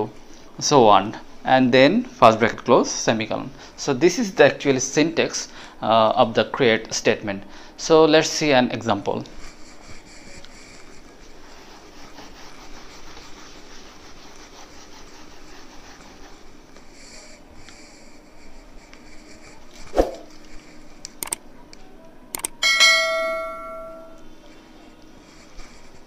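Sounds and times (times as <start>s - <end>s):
duster rubbing on whiteboard: 9.2s - 21.0s, 25.2s - 26.0s
clicks: 21.0s - 22.6s
bright bell ding: 22.6s - 24.2s.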